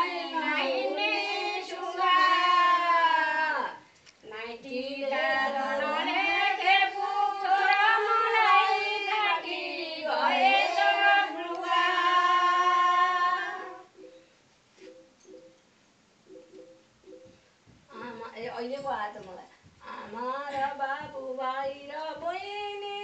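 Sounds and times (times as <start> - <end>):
women singing in unison: 0.0 - 14.0, 19.8 - 23.0.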